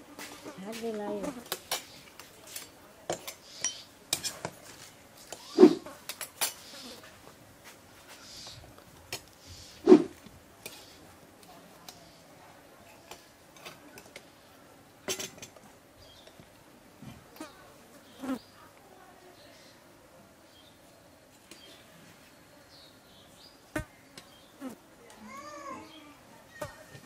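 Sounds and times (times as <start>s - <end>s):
dishes and cutlery clinking: 2.5s - 4.6s, 15.1s - 15.6s.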